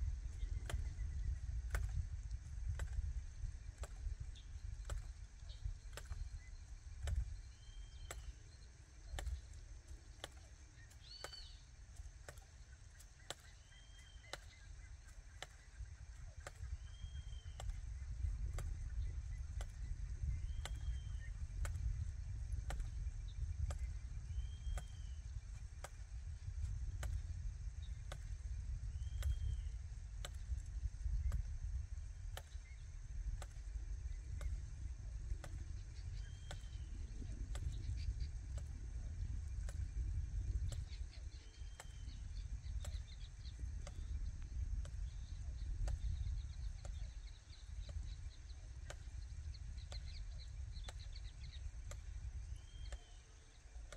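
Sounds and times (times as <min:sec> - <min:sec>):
steady low rumble: 0:00.0 - 0:53.9
bird whistling calls: 0:10.3 - 0:11.6, 0:13.2 - 0:15.8, 0:16.4 - 0:17.8, 0:23.8 - 0:25.2, 0:29.0 - 0:29.8, 0:52.5 - 0:53.5.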